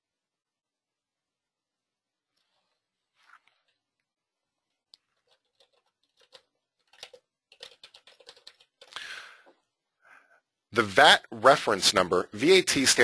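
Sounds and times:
faint keyboard typing: 4.8s - 9.6s.

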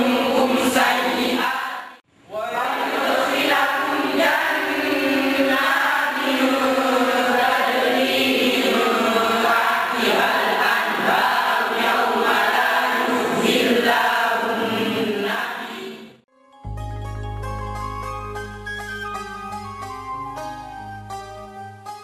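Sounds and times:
boys chanting recitation: 0.0s - 16.1s.

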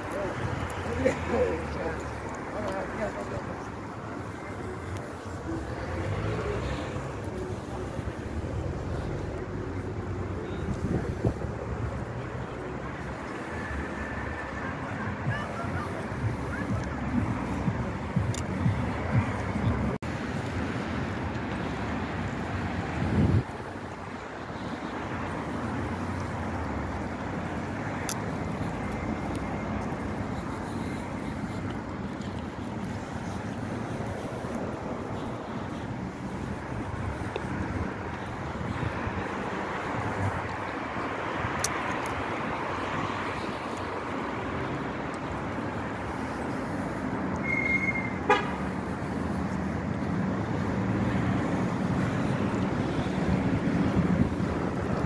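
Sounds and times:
road traffic noise: 0.0s - 55.0s
brief horn toot: 47.4s - 48.6s.

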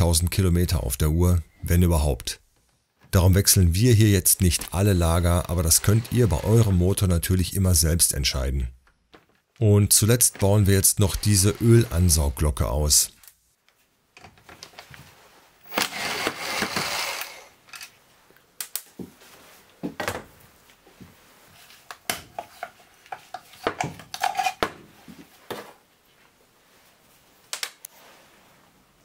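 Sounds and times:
metal scraping: 5.4s - 7.0s, 10.4s - 12.6s.

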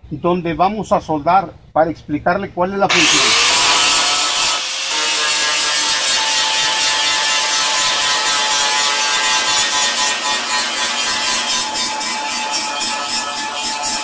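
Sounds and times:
electric motor whining: 2.9s - 7.2s.

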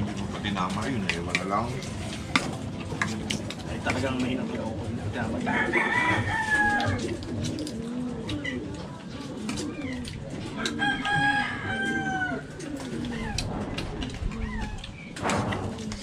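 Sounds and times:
rooster crowing: 5.4s - 7.1s, 10.7s - 12.6s.

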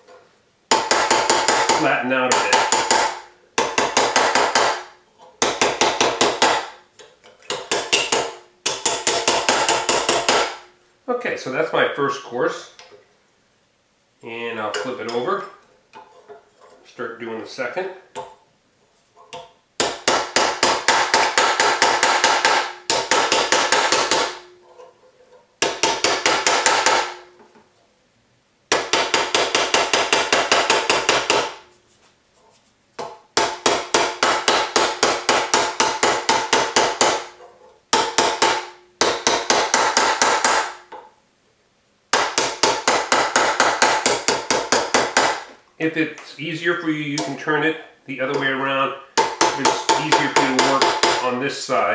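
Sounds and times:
hammer tapping metal: 0.7s - 6.8s, 7.5s - 10.6s, 19.3s - 24.5s, 25.6s - 27.3s, 28.7s - 31.6s, 33.0s - 41.1s, 42.1s - 45.5s, 49.1s - 51.2s.

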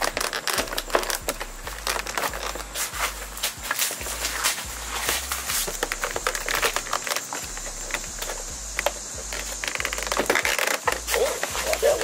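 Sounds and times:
plastic clicks and knocks: 5.7s - 11.0s.

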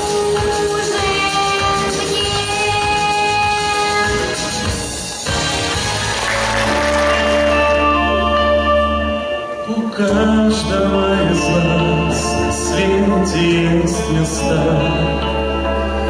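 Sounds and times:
instrumental accompaniment: 0.0s - 16.0s
man singing into microphone: 9.6s - 15.6s.

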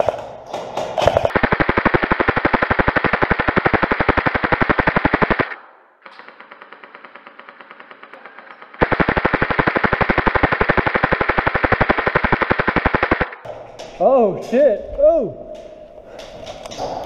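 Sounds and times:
airsoft gun rapid fire: 1.0s - 5.6s, 6.2s - 13.5s
faint rapid shots: 1.2s - 5.6s, 6.2s - 13.5s.

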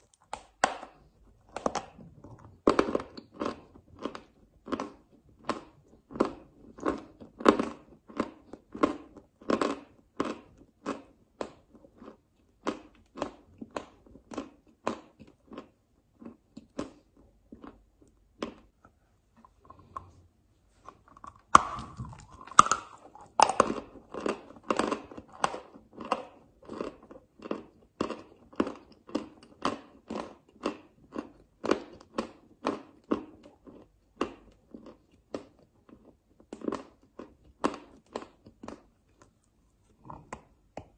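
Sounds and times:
person chewing chalk: 0.0s - 20.2s, 20.8s - 40.9s.

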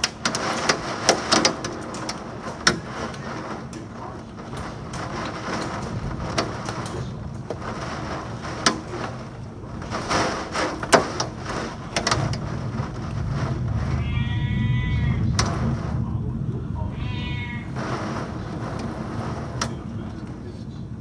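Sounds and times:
sharp clicks and knocks: 0.0s - 14.0s
heavy rain downpour: 0.0s - 21.0s.

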